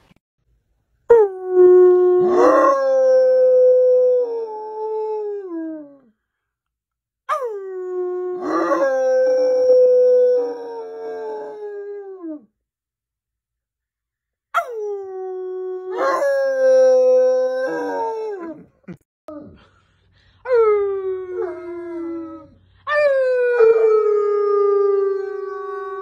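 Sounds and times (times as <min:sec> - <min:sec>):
dog howling: 0:01.8 - 0:04.5, 0:07.3 - 0:12.4, 0:14.6 - 0:18.6.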